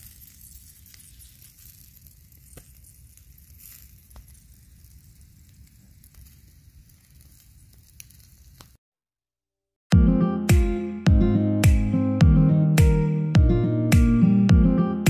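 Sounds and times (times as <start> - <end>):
chicken sizzling and crackling: 0.0 - 8.8.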